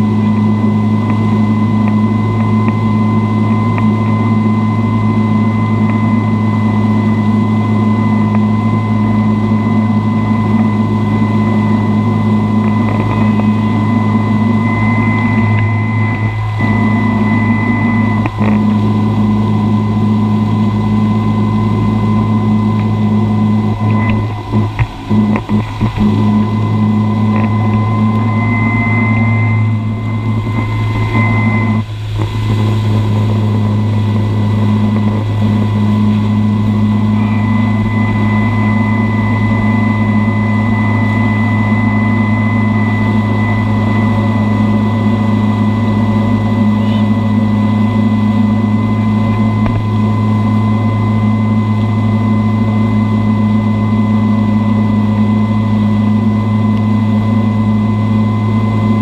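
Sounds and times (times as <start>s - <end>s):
boat engine droning: 0.0s - 59.0s
engine whine: 0.0s - 59.0s
water rushing behind boat: 28.6s - 50.7s.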